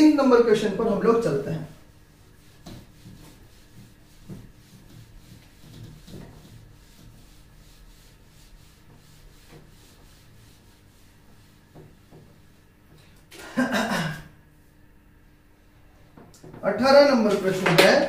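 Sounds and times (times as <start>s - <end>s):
whiteboard being wiped: 0.9s - 13.0s, 17.1s - 17.9s.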